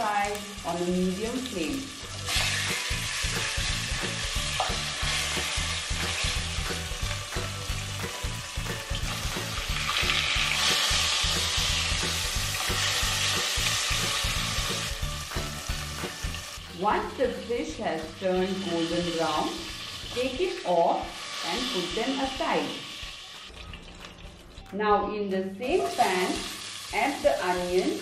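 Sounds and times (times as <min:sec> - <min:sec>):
fish sizzling in hot oil: 0:00.0 - 0:16.7, 0:18.0 - 0:24.1, 0:25.9 - 0:28.0.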